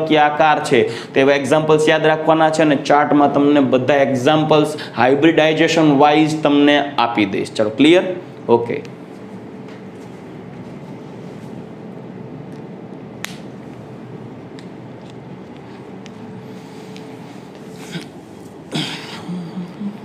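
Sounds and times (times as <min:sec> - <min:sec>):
low room hum: 0:00.0 - 0:20.0
sharp click: 0:13.2 - 0:13.5.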